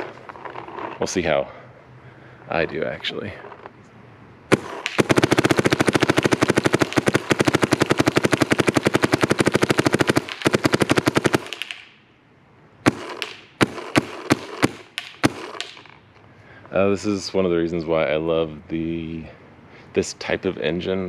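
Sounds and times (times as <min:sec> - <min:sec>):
paintball marker firing rapidly: 0:04.5 - 0:11.9, 0:12.8 - 0:16.0
single paintball shots: 0:04.5 - 0:12.0, 0:12.8 - 0:16.0.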